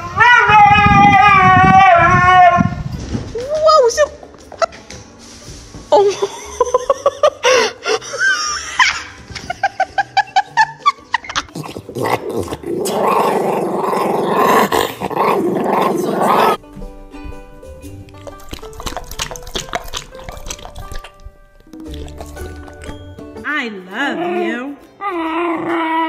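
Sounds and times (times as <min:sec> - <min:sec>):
dog growling: 0:11.5 - 0:16.6, 0:25.0 - 0:26.0
dogs whining: 0:24.2 - 0:26.0
dogs yipping: 0:25.0 - 0:26.0.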